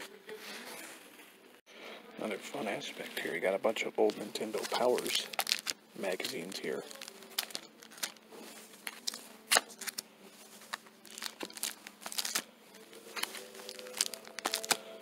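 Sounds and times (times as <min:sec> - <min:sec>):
plastic bags crinkling: 0:04.1 - 0:15.0.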